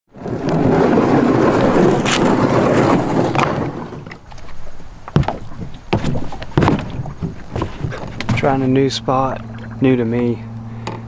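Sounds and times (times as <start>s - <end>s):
gear rustling and scraping: 0.2s - 10.2s
sharp knocks: 5.2s - 8.6s.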